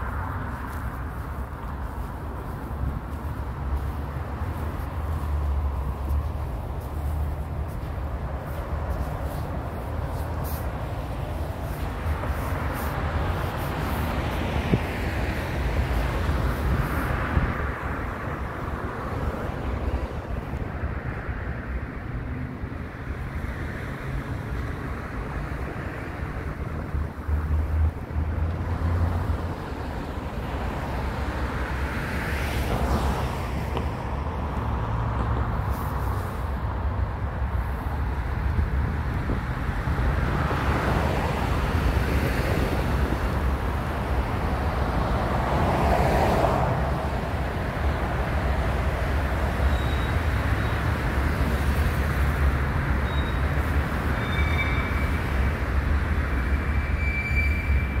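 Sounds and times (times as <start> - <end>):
wind on microphone: 0.0 - 21.2
traffic rumble: 0.0 - 58.0
vehicles passing by: 0.0 - 58.0.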